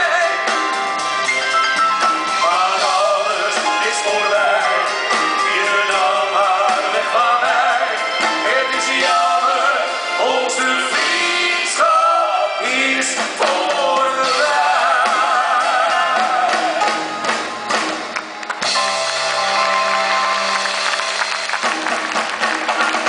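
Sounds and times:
live band playing: 0:00.0 - 0:23.0
men singing a ballad duet: 0:02.4 - 0:16.8.

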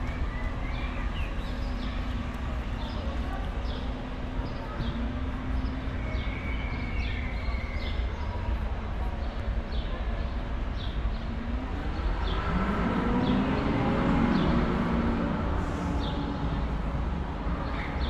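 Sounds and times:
traffic rumble: 0:00.0 - 0:18.0
vehicle engine approaching: 0:10.6 - 0:18.0.

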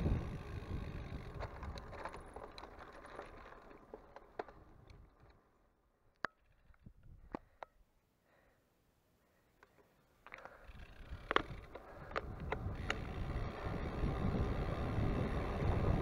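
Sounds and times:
bicycle wind and rolling rumble: 0:00.0 - 0:07.6, 0:09.7 - 0:16.0.

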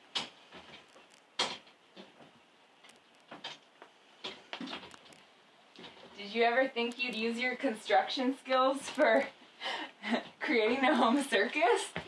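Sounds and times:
faint clicks and taps: 0:00.1 - 0:06.2.

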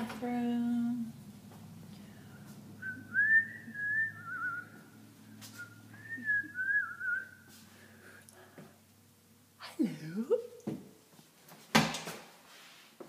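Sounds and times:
person whistling a tune: 0:02.8 - 0:04.8, 0:05.6 - 0:07.5.

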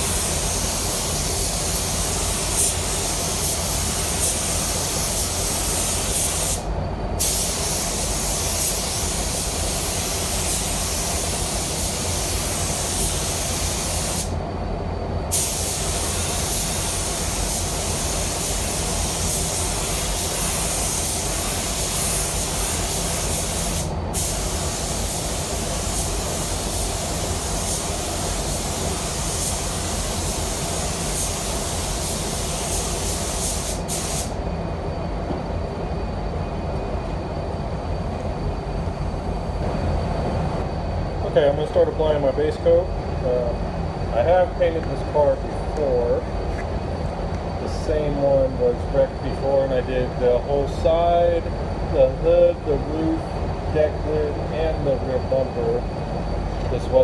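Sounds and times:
spray gun hissing: 0:00.0 - 0:14.4, 0:15.3 - 0:34.4.

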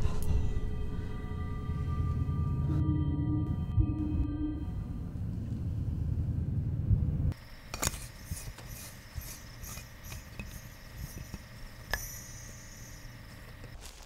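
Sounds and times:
low rumble: 0:00.0 - 0:07.4.

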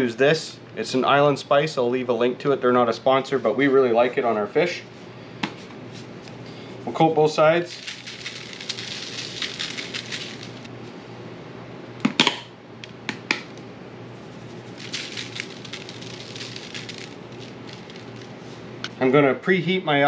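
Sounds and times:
seasoning shaker rattling: 0:07.6 - 0:10.7, 0:14.2 - 0:18.7.

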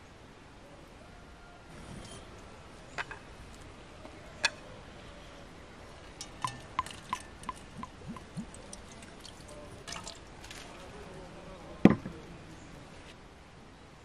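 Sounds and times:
milk splashing into basin: 0:06.2 - 0:11.0.

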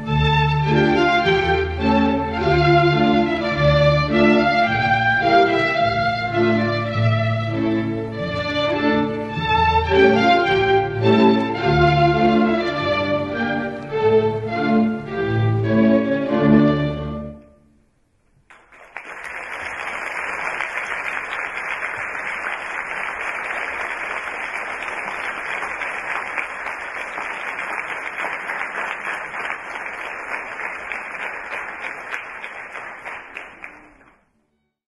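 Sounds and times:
orchestral music: 0:00.0 - 0:17.7
audience applauding: 0:18.5 - 0:34.3.

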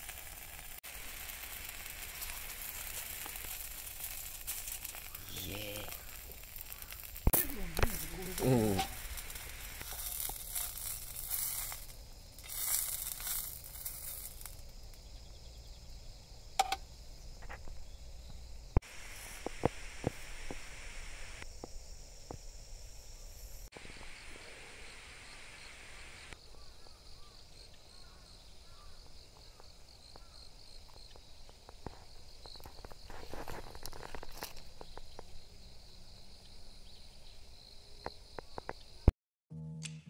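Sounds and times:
sausage sizzling in oil: 0:00.0 - 0:15.1, 0:18.5 - 0:21.5, 0:30.4 - 0:35.8.

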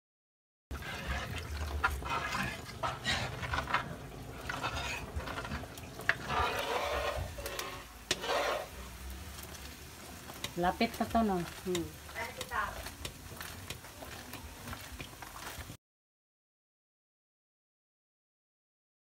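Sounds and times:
metal spatula scraping wok: 0:00.7 - 0:15.8
wet mixture sloshing: 0:00.7 - 0:15.8.

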